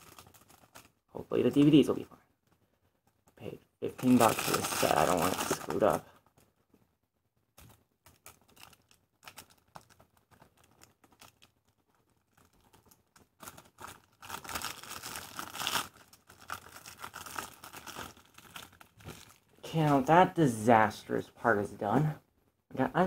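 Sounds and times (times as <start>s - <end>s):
plastic wrapping crinkling and tearing: 0.0s - 1.8s, 3.8s - 6.4s, 7.6s - 20.1s.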